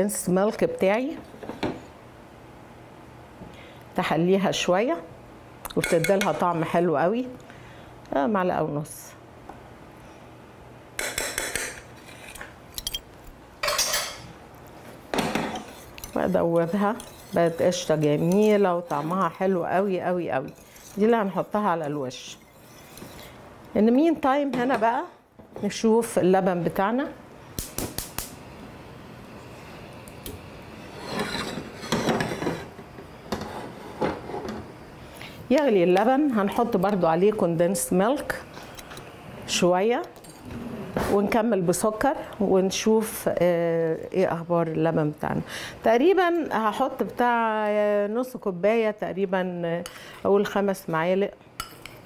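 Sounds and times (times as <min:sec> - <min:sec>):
metal spoon scraping saucepan: 0:15.4 - 0:23.4, 0:30.8 - 0:32.7.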